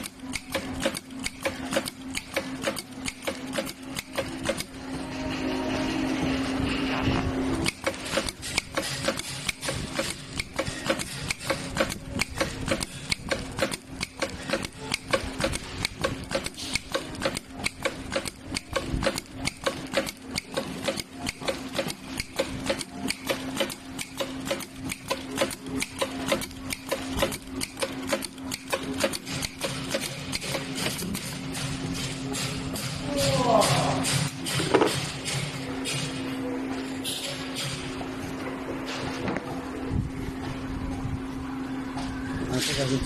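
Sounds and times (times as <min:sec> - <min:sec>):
sewing machine needles ticking: 0:00.0 - 0:04.7, 0:07.6 - 0:31.0
low motor hum: 0:00.0 - 0:20.5, 0:21.1 - 0:43.0.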